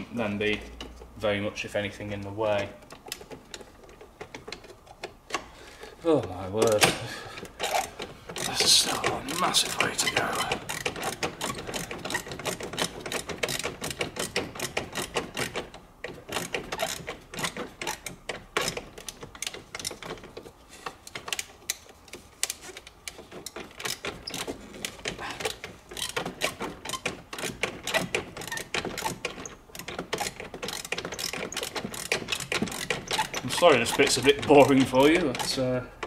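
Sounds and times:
ratchet spanner clicking: 7.6s - 20.2s, 20.8s - 35.7s.

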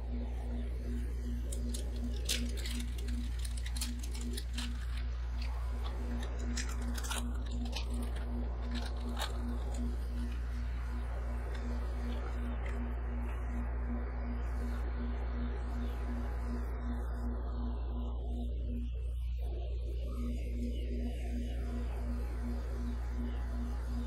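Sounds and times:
machine humming: 0.0s - 24.0s
plastic wrapper crinkling: 1.5s - 10.5s.

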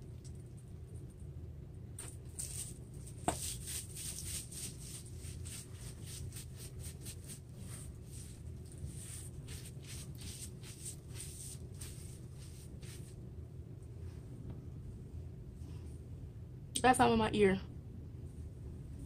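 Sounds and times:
low room hum: 0.0s - 19.0s
plastic gloves rubbing hair: 2.0s - 13.2s.

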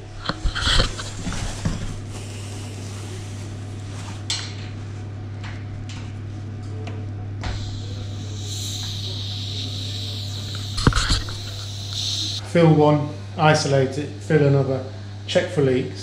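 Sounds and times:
low hum and hiss: 0.0s - 16.0s
higher hiss: 7.4s - 12.4s
radiator valve clicks: 7.4s - 12.4s.

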